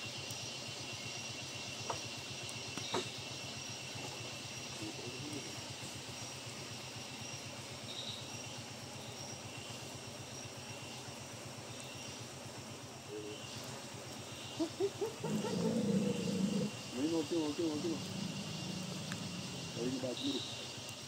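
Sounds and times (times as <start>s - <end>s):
insects droning: 0.0s - 21.0s
vehicle engine idling: 0.0s - 21.0s
low voices: 14.6s - 20.6s.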